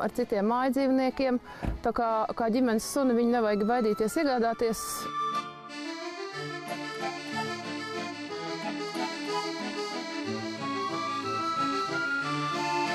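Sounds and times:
instrumental music: 3.4 - 12.9.

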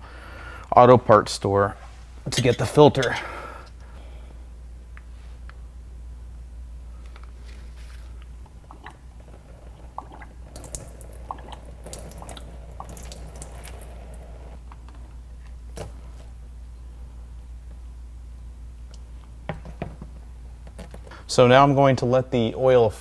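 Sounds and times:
wet squishes: 7.6 - 14.6
oil dripping into drain pan: 8.4 - 14.6.

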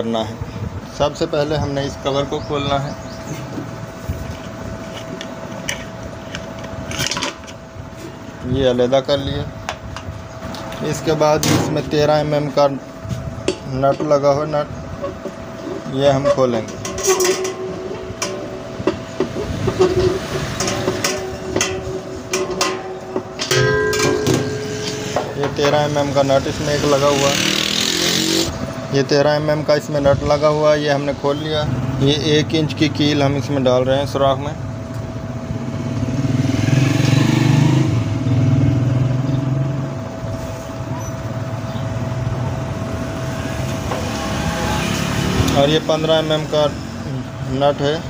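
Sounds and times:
steady background hum: 0.0 - 48.0
spanner clinking and scraping metal: 16.1 - 28.6
vehicle engine passing by: 25.8 - 28.6, 35.6 - 39.9, 43.2 - 47.1.

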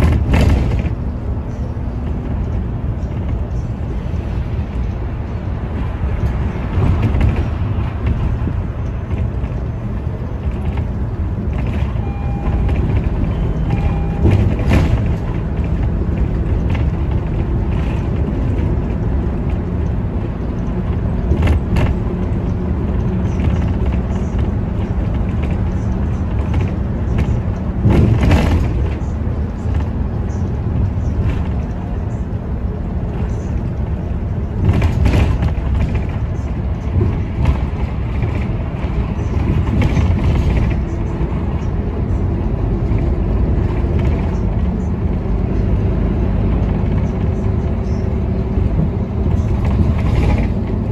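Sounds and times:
knocks and rattles: 0.0 - 1.1, 12.6 - 30.0
bus engine rumble: 0.0 - 50.9
short beeps: 11.9 - 14.7.

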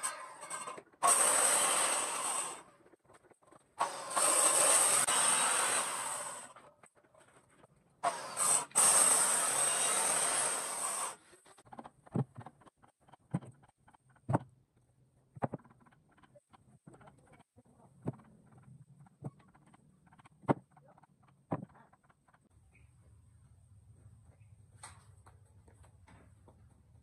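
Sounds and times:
power tool working wood: 0.0 - 2.6, 3.8 - 6.6, 8.0 - 11.2
knocks of wood being handled: 15.3 - 17.1, 18.0 - 22.4.

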